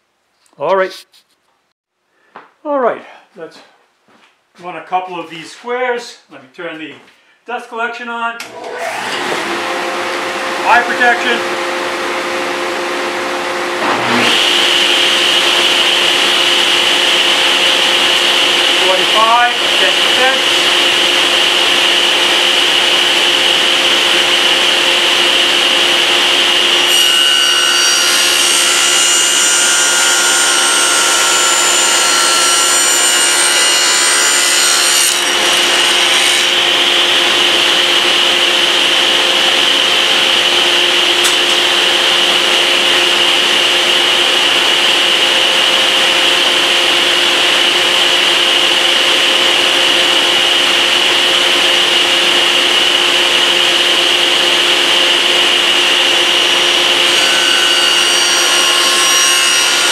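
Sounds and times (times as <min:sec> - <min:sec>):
table saw running: 0:08.5 - 0:59.9
dust collector running: 0:08.6 - 0:34.0, 0:35.1 - 0:59.9
saw blade cutting wood: 0:13.8 - 0:17.3, 0:25.2 - 0:37.6, 0:56.7 - 0:59.9.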